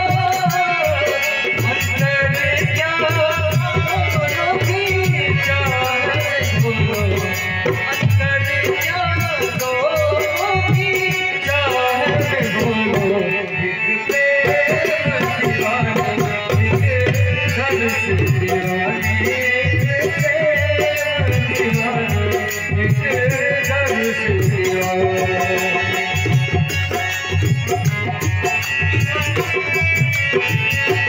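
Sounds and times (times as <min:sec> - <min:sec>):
harmonium melody: 0:00.0 - 0:31.0
rattling percussion: 0:00.0 - 0:31.0
steady drum beat: 0:14.4 - 0:31.0.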